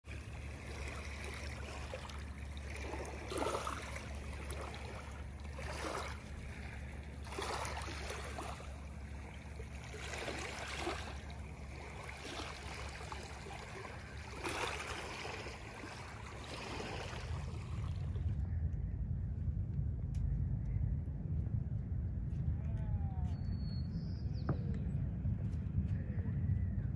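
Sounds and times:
waves lapping on pebbles: 0.0 - 18.2
steady low rumble: 0.0 - 26.9.

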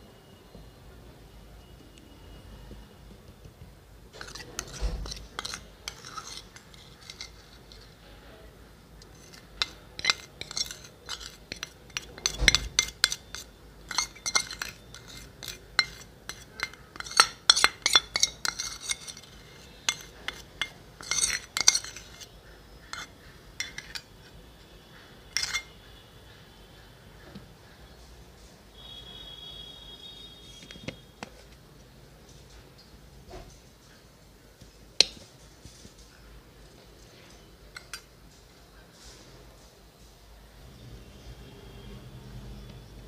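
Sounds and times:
metal spoon scraping steel bowl: 4.1 - 8.0, 9.0 - 26.0, 37.7 - 38.1.

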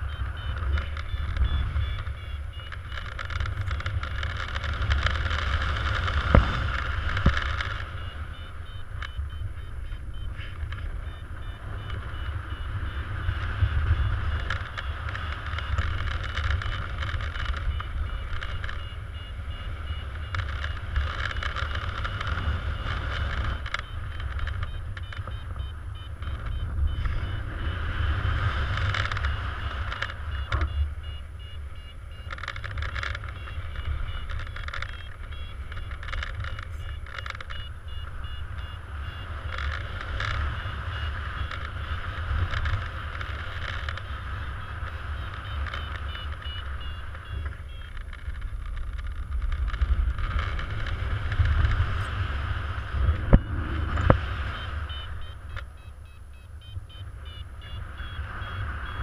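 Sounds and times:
short high variometer beeps: 0.0 - 49.0, 50.0 - 59.0
wind buffeting microphone: 46.0 - 55.7.

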